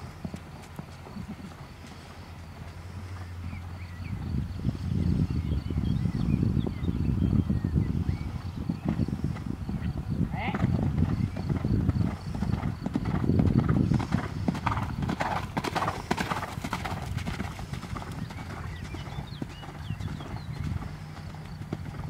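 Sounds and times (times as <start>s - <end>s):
horse hoofbeats on sand: 0.0s - 3.8s, 9.9s - 22.0s.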